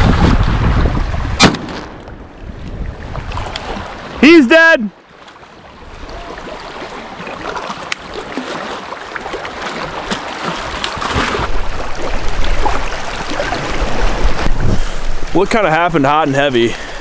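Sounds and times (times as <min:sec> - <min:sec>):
wind buffeting microphone: 0:00.0 - 0:04.2, 0:10.6 - 0:15.6
waves lapping against boulders: 0:00.0 - 0:17.0.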